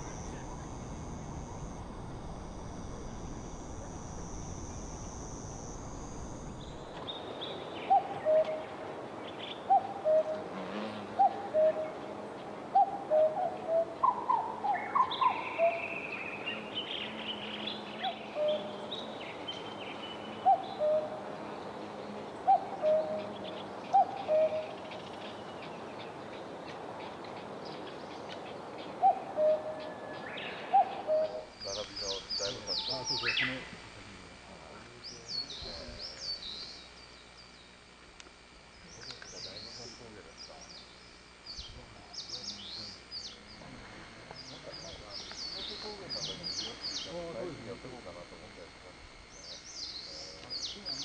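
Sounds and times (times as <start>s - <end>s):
cuckoo calling: 0.0s - 33.6s
birds chirping: 0.0s - 33.9s, 34.8s - 48.0s, 48.7s - 51.0s
outdoor background noise: 0.0s - 51.0s.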